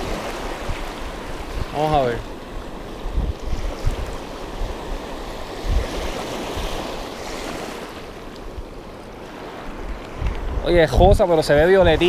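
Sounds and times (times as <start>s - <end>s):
small waves breaking: 0.0s - 12.0s
wind buffeting microphone: 0.0s - 12.0s.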